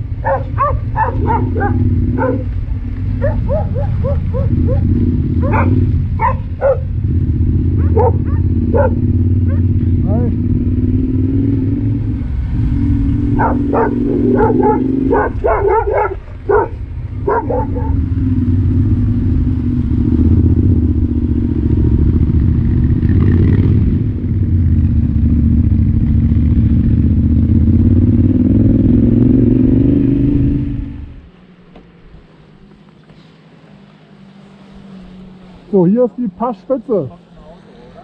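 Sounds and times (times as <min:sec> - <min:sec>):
motorcycle engine running: 0:00.0 - 0:38.0
dog barking: 0:00.2 - 0:02.6, 0:03.2 - 0:07.0, 0:07.8 - 0:09.8, 0:13.3 - 0:18.1.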